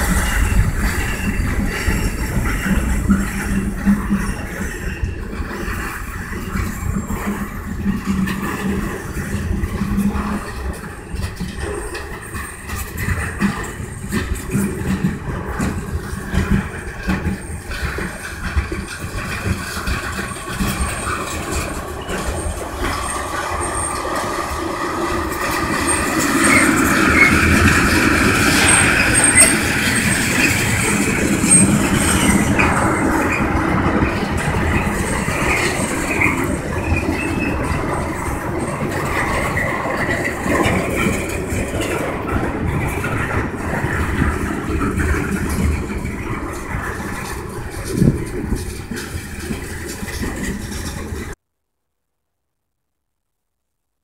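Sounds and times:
train wheels rumbling on rail: 0.0 - 51.4
high-pitched wheel squeals: 16.5 - 42.0.

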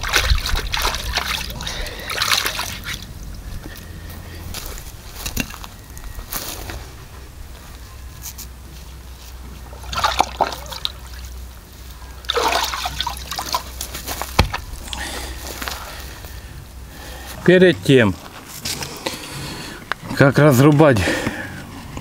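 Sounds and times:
water dripping: 0.0 - 3.2, 9.7 - 15.1
water sloshing in a plastic tub: 0.0 - 3.8, 9.6 - 15.1.

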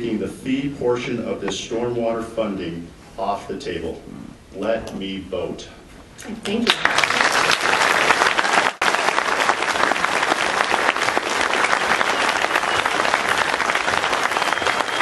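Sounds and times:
crowd applauding: 6.6 - 15.0.

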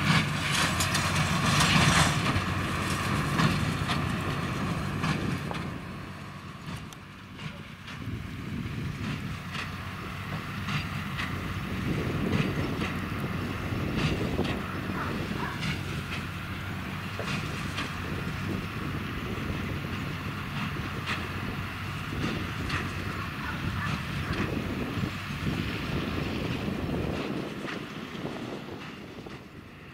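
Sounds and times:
tractor diesel engine under load: 0.0 - 29.9.

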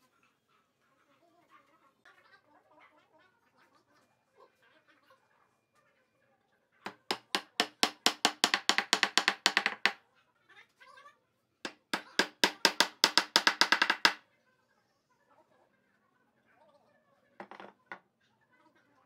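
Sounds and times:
mallet knocking wooden stool leg: 6.9 - 10.0, 11.7 - 14.2.

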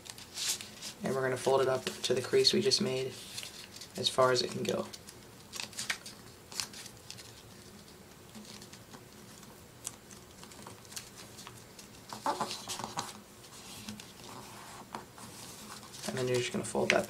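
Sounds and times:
paper rustling and crinkling: 0.0 - 17.0.

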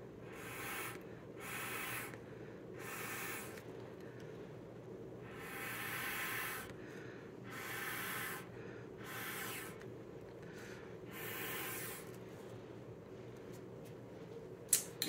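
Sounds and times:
hissing air puffs through tube: 0.2 - 3.7, 5.2 - 13.6.

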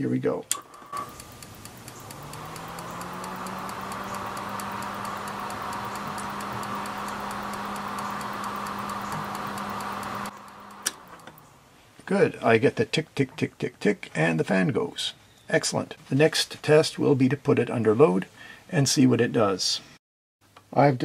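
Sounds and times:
power supply ticking: 0.5 - 11.5
cooling fan humming: 0.5 - 12.0.

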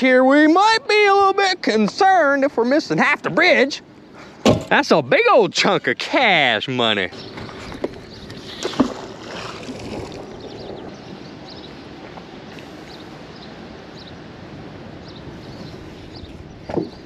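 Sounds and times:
river water flowing: 5.5 - 16.2
magnet splashing into river: 8.4 - 10.3.

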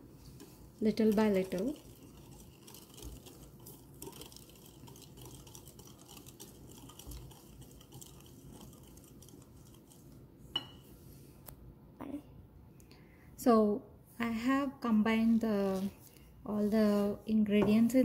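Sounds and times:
whisk brushing in glass bowl: 0.0 - 10.8.

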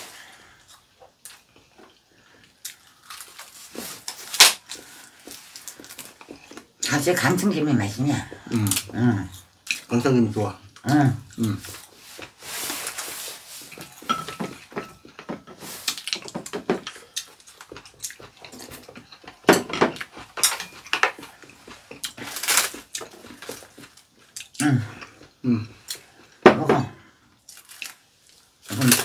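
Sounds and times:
mouth sounds of eating: 4.7 - 13.8, 21.2 - 27.2.

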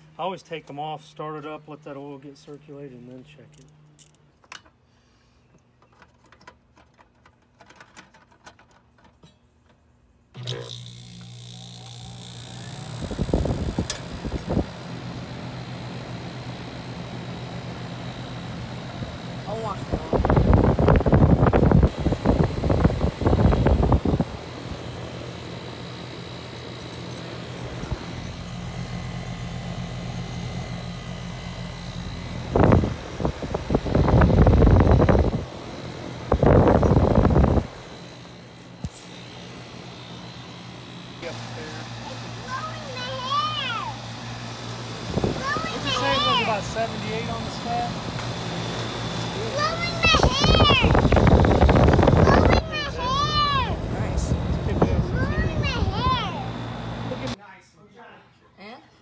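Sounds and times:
air conditioner unit humming: 0.0 - 59.0
wind buffeting microphone: 13.0 - 14.7, 19.8 - 24.4, 32.4 - 35.5, 36.3 - 37.8, 45.1 - 45.7, 49.8 - 56.2.

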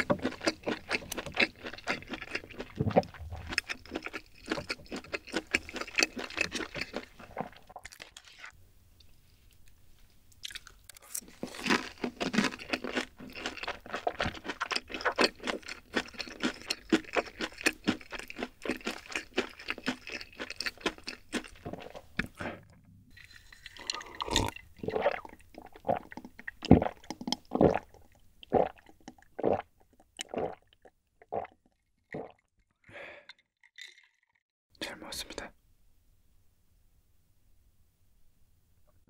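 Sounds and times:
loud gulping swallows: 0.0 - 4.9, 23.7 - 32.5
chewing and crunching: 0.0 - 8.5, 10.3 - 32.5.

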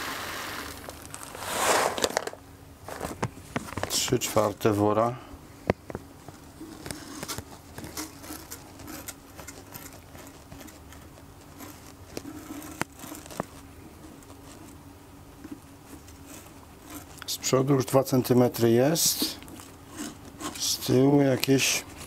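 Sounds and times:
soil pellets rustling: 0.0 - 3.2.

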